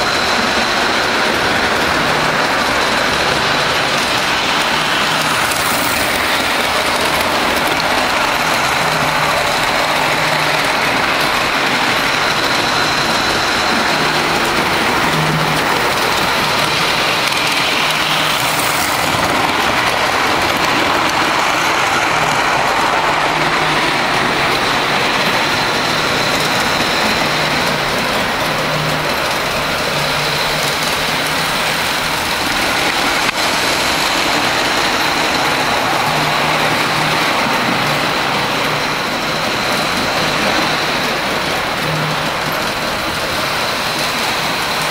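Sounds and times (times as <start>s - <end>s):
model train wheels rolling on rails: 0.0s - 44.9s.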